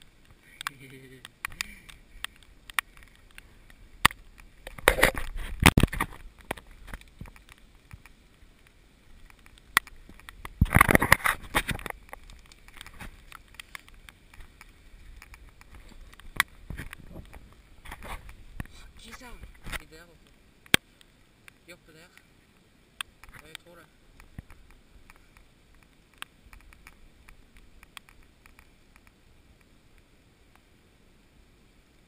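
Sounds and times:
rustling and scraping on camera: 0.0s - 21.1s
sharp clicks: 0.0s - 22.3s.

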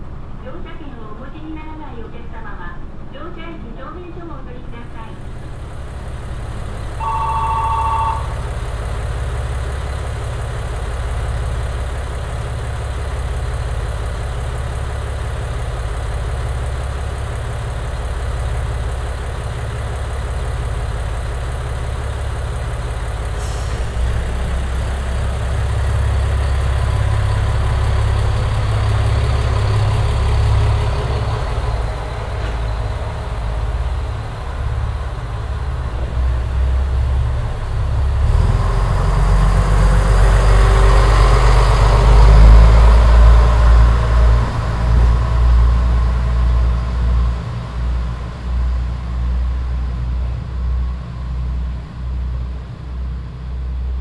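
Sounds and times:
diesel railcar engine running: 0.0s - 54.0s
short two-tone beep: 7.0s - 8.4s.

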